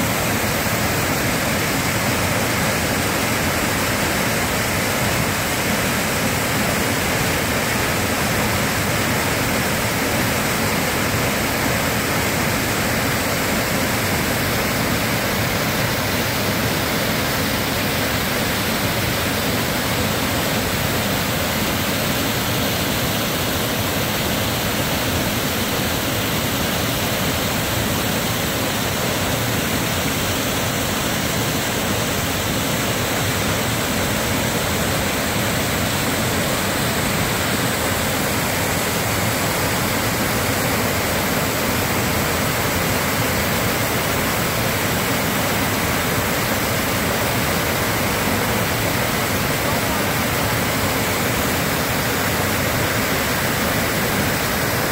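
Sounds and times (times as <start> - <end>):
waterfall rushing: 0.0 - 54.9.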